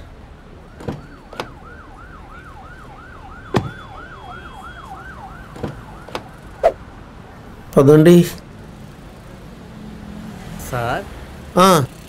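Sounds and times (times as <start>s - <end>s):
car door shutting: 0.8s - 1.6s, 3.5s - 3.8s
electronic siren yelping: 1.0s - 6.8s.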